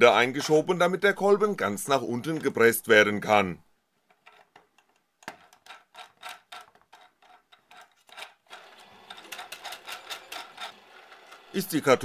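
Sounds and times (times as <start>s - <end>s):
plastic parts clicking and tapping: 4.0s - 11.6s.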